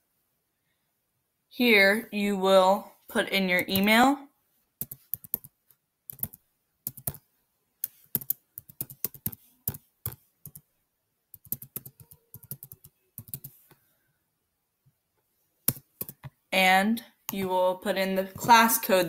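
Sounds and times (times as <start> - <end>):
typing on a computer keyboard: 4.8 - 7.2, 7.8 - 10.7, 11.3 - 13.7, 15.7 - 16.3.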